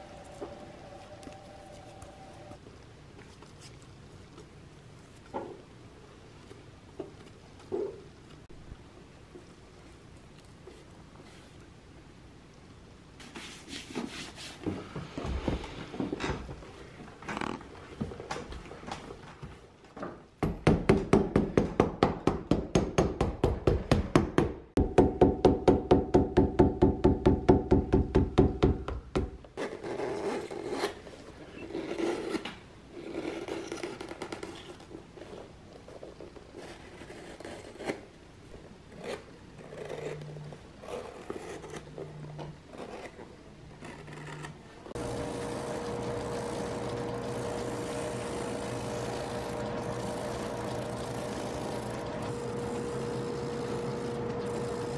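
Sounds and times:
knife scraping leather: 0:29.6 - 0:34.8
sanding machine humming: 0:45.0 - 0:54.9.

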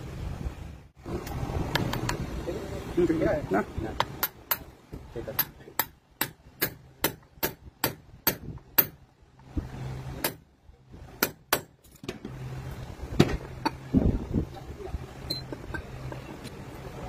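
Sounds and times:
hammer tapping on metal: 0:04.0 - 0:09.0.

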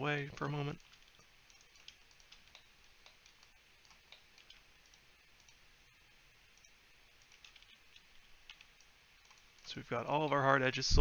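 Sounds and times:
computer mouse clicks: 0:00.4 - 0:05.6, 0:06.5 - 0:10.4.

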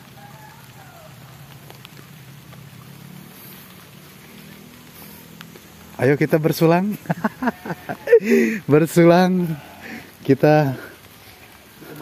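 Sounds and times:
light drizzle falling: 0:00.0 - 0:12.0.

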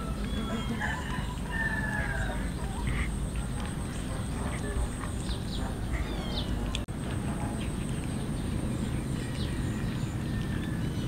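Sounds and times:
bird chirps: 0:00.0 - 0:06.8
cats eating off metal tray: 0:00.0 - 0:11.0.

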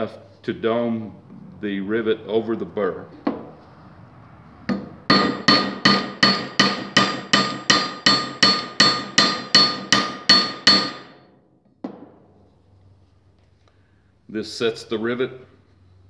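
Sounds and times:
hammer striking metal rivet: 0:04.7 - 0:11.2.

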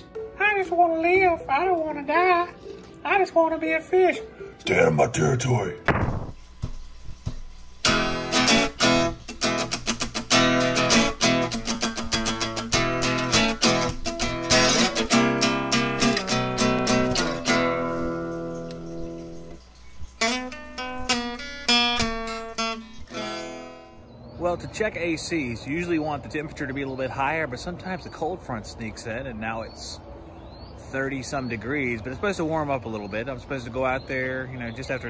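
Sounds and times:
strummed acoustic guitar: 0:07.8 - 0:19.6, 0:20.2 - 0:24.0.

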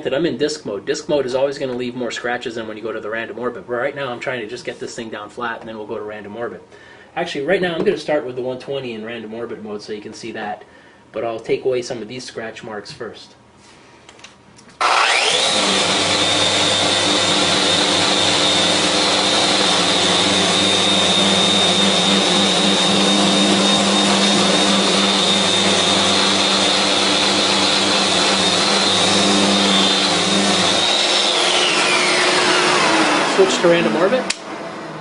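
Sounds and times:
electric sander whining: 0:14.8 - 0:34.5.

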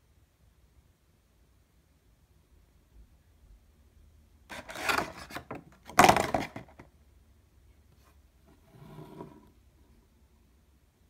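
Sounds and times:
figure scraping on wooden table: 0:04.5 - 0:05.4, 0:08.4 - 0:09.6.

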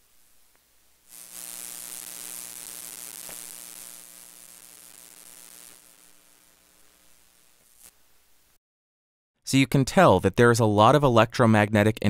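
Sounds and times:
steady low hum: 0:00.0 - 0:07.9
loud hissing static: 0:00.0 - 0:08.6.

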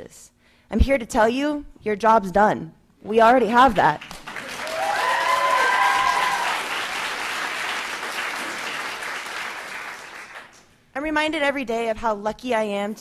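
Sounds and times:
audience applauding: 0:04.0 - 0:10.6
voices cheering: 0:04.4 - 0:08.9.

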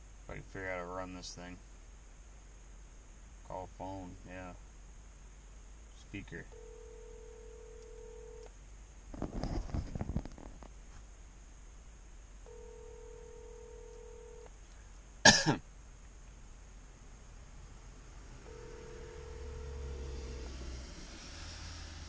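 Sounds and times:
phone ringback tone: 0:06.5 - 0:08.5, 0:12.5 - 0:14.5, 0:18.4 - 0:20.5
man coughing: 0:15.2 - 0:15.6.

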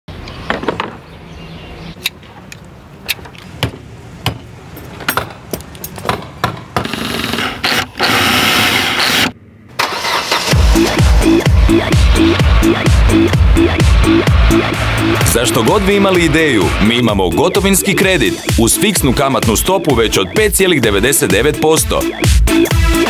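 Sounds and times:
hand tools clicking and scraping: 0:04.7 - 0:09.4
loud steady noise: 0:09.8 - 0:18.7.

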